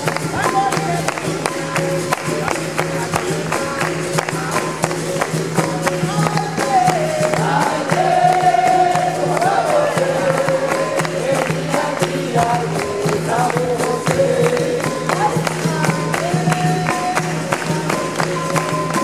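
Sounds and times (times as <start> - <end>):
struck percussion: 0.0 - 19.0
group singing: 5.6 - 19.0.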